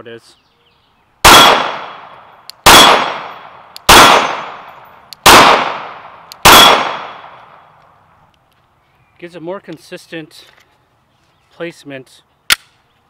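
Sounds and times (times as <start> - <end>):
pistol shots with echo: 1.2 - 7.6.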